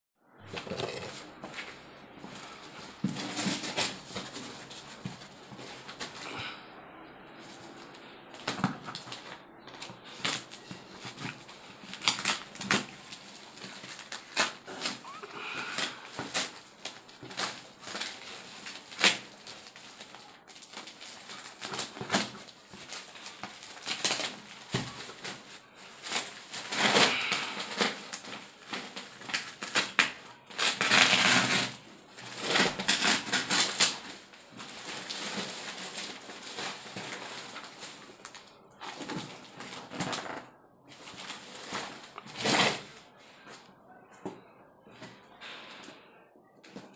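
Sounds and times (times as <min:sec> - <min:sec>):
packaging rustling: 0:00.5 - 0:06.5, 0:07.4 - 0:43.2
packaging crackling and clicking: 0:08.4 - 0:43.0
knife cutting plastic and cardboard: 0:26.0 - 0:34.1.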